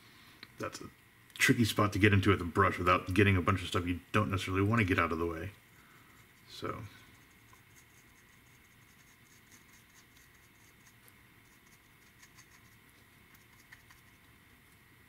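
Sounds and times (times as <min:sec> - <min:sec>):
faint high background tone: 0:00.0 - 0:15.0
paintbrush dabbing on plastic: 0:04.8 - 0:14.8.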